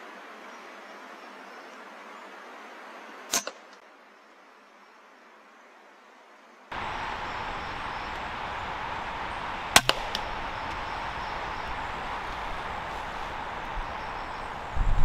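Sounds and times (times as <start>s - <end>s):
steady outdoor hiss: 0.0s - 15.0s
air rifle firing crack: 6.8s - 14.5s.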